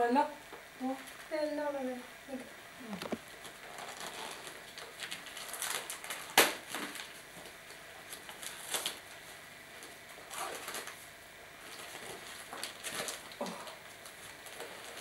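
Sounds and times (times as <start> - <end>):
wrapping paper rustling: 3.2 - 15.0.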